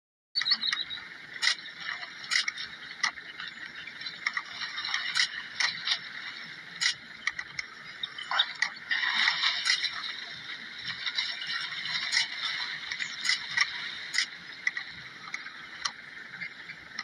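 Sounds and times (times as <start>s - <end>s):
sharp clicks and snaps: 0.4s - 1.6s, 2.3s - 3.2s, 6.8s - 8.8s
steady rushing noise: 1.0s - 17.0s
splashing in shallow water: 1.4s - 15.9s.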